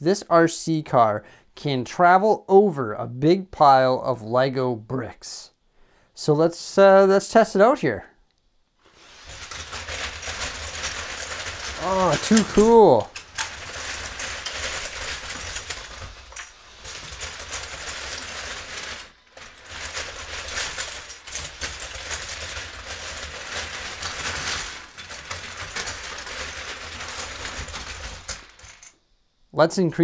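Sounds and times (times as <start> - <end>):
plastic bricks clattering: 8.9 - 29.0.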